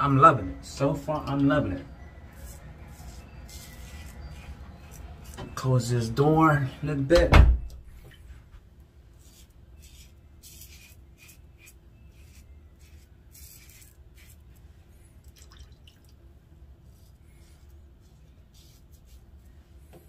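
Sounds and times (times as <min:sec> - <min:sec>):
razor scratching through stubble: 0:02.2 - 0:05.6, 0:09.1 - 0:14.6, 0:16.9 - 0:19.5.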